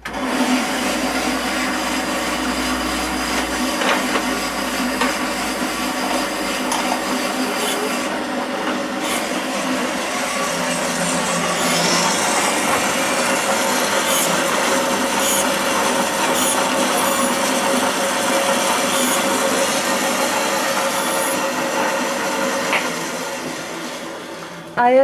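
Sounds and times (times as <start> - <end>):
band saw running: 0.0 - 24.9
blade hissing through carrot: 7.3 - 8.1, 9.0 - 19.7, 20.8 - 21.4.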